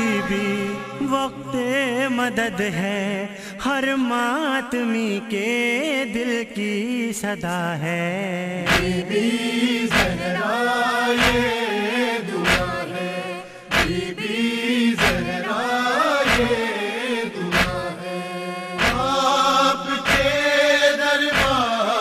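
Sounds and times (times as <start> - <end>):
person singing devotional lament: 0.0 - 22.0
deep beat: 8.7 - 9.0, 12.5 - 12.8, 13.7 - 14.1, 15.0 - 15.3, 16.3 - 16.6, 17.5 - 17.9, 18.8 - 19.2, 20.0 - 20.4, 21.4 - 21.6.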